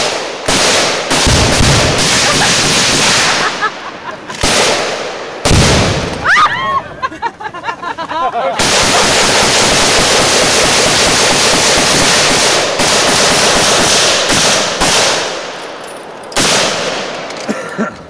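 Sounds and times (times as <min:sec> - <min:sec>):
automatic gunfire: 0:00.0 - 0:03.6, 0:04.4 - 0:06.2, 0:08.6 - 0:15.5, 0:16.4 - 0:17.1.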